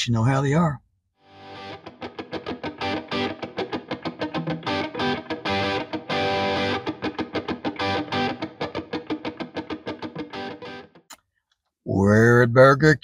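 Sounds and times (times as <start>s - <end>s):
instrumental guitar music: 1.3s - 11.2s.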